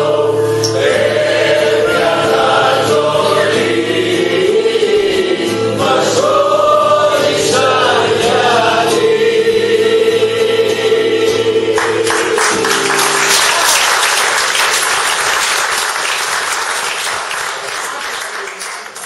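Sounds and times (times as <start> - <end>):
choir holding chord: 0.0 - 17.1
audience applause: 11.8 - 19.0.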